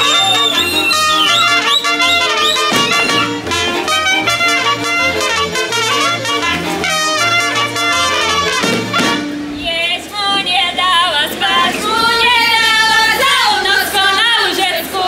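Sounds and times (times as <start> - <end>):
live band with brass: 0.0 - 9.8.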